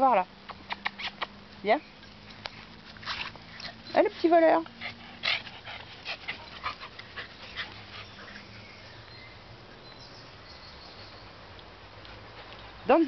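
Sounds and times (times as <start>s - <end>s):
dog breathing and snuffling: 2.3s - 8.7s.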